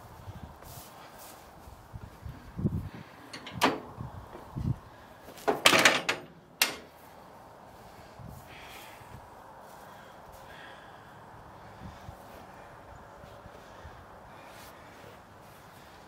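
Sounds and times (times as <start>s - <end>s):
metal clunks and rattles: 3.3s - 4.0s, 5.4s - 6.9s.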